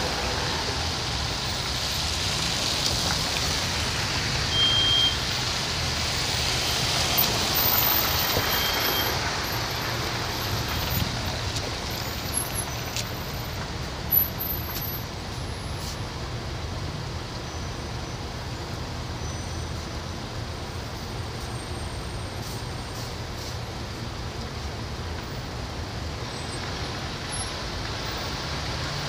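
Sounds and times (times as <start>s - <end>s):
tyres hissing on wet road: 0.0s - 29.0s
short high beep: 4.5s - 5.2s.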